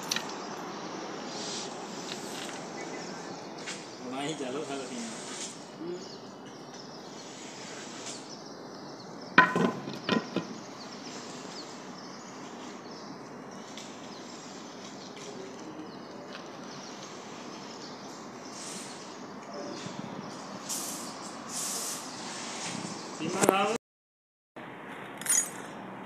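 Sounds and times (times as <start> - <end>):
outdoor background noise: 0.0 - 23.8, 24.6 - 26.0.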